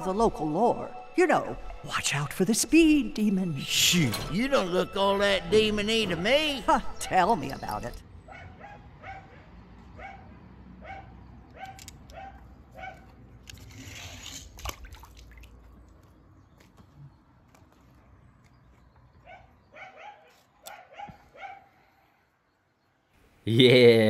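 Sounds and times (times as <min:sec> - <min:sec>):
dog yapping: 0:08.3 - 0:13.1, 0:19.2 - 0:21.7.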